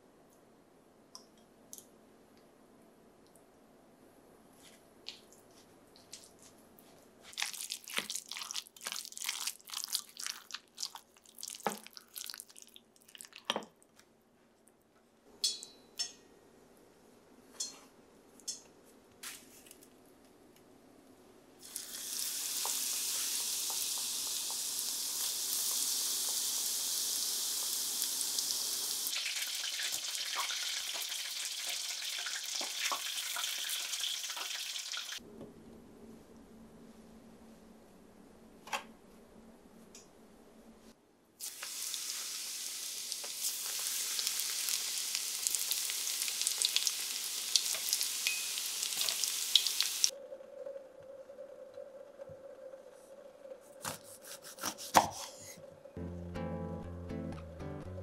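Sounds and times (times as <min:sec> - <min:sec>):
oil hissing and crackling: 0:21.6 - 0:35.2, 0:41.4 - 0:50.1.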